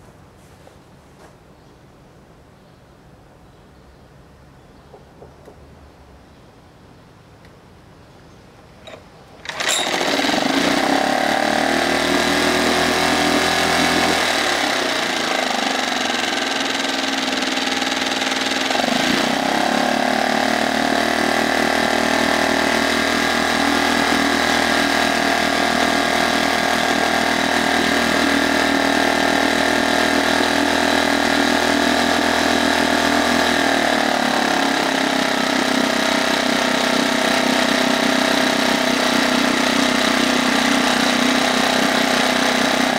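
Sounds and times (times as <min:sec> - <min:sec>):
outboard motor starting and running: 0:08.8 - 0:42.9.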